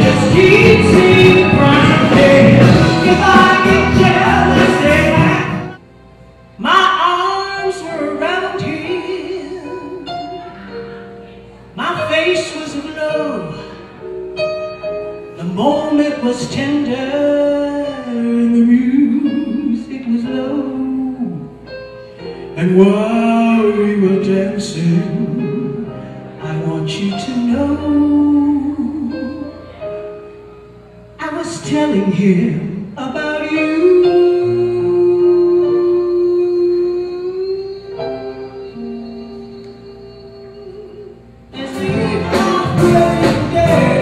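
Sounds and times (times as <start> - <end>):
live band playing: 0.0 - 5.8, 32.6 - 44.0
woman singing soul-jazz ballad: 0.0 - 5.8, 6.6 - 10.5, 15.4 - 21.5, 22.6 - 29.7, 31.2 - 44.0.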